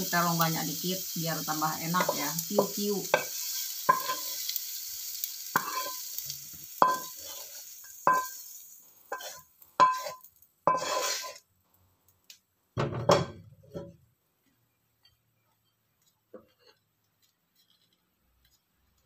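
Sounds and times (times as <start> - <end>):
hot oil sizzling: 0.0 - 13.8, 15.1 - 19.0
spatula scraping a wok: 2.0 - 11.5, 15.4 - 19.0.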